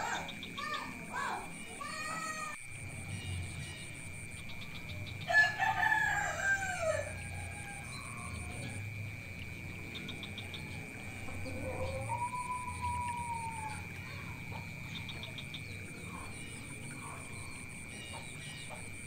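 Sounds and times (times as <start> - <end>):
rooster crowing: 5.2 - 9.0, 10.6 - 14.2.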